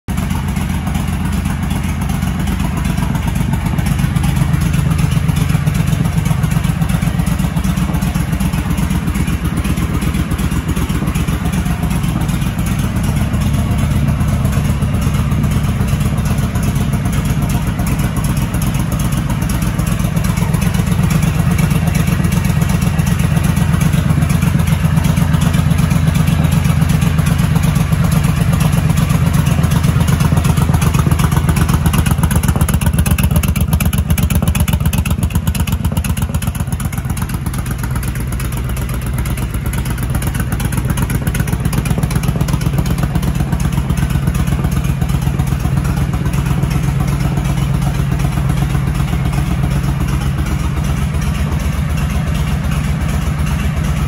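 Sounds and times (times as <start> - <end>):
motorcycle engine idling: 0.0 - 54.0.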